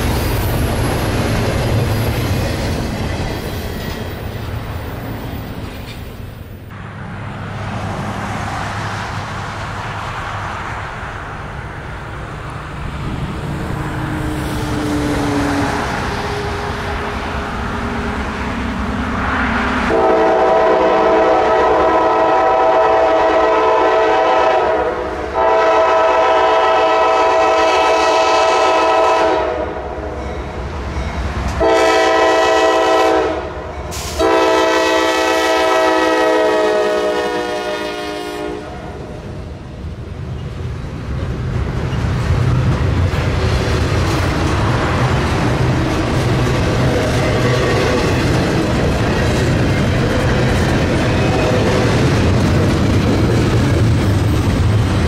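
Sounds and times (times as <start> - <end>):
train rumble: 0.0 - 55.0
locomotive air horn blasts: 19.9 - 30.2, 31.6 - 39.1.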